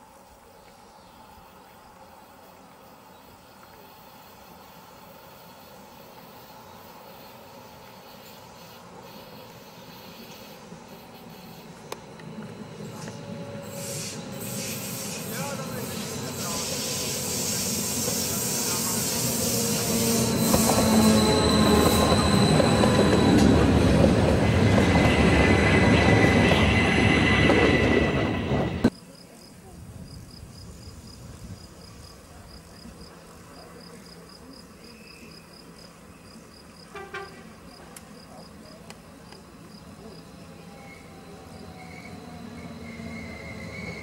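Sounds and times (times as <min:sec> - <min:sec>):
electric train passing: 0:00.0 - 0:28.9, 0:35.8 - 0:44.0
train wheels squealing: 0:06.4 - 0:28.9, 0:39.5 - 0:44.0.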